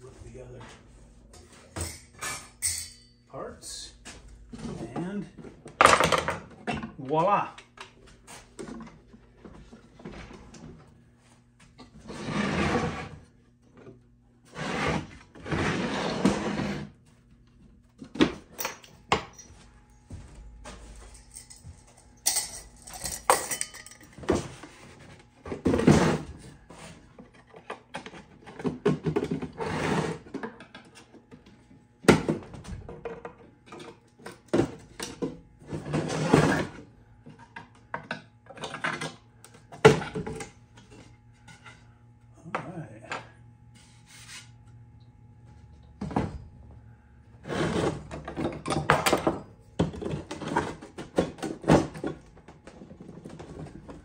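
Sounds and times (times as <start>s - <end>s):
wooden panels sliding and scraping: 14.5s - 17.0s, 43.8s - 44.6s.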